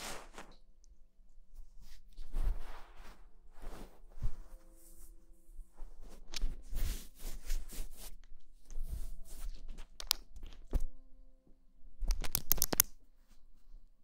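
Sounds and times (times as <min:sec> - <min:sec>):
fabric rustling: 0:00.0 - 0:00.6, 0:01.5 - 0:11.0
clicks: 0:12.0 - 0:13.0.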